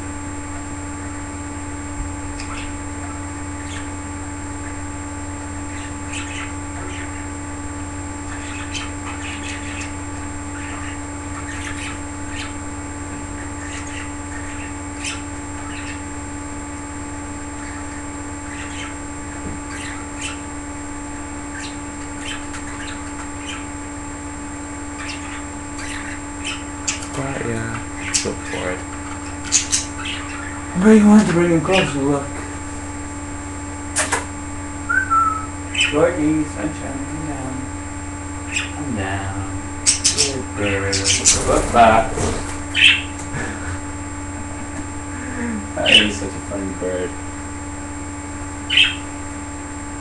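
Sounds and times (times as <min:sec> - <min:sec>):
steady low hum: 0:00.0 - 0:50.0
budgerigars chirping: 0:02.3 - 0:04.0, 0:05.7 - 0:07.4, 0:08.2 - 0:12.6, 0:13.3 - 0:16.1, 0:17.4 - 0:19.0, 0:19.6 - 0:20.5, 0:21.5 - 0:23.8, 0:25.0 - 0:27.2, 0:27.9 - 0:32.0, 0:35.2 - 0:36.1, 0:38.4 - 0:38.8, 0:39.8 - 0:43.2, 0:45.8 - 0:46.3, 0:48.6 - 0:49.1.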